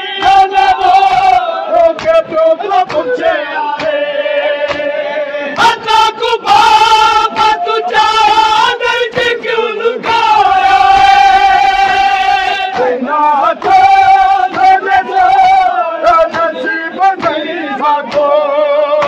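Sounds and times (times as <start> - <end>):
loud chanting of a lament: 0.0 - 19.0
hands slapping bare chests: 1.1 - 3.2, 3.8 - 4.0, 4.6 - 4.9, 7.2 - 7.6, 12.7 - 14.8, 17.2 - 17.4, 18.1 - 18.3.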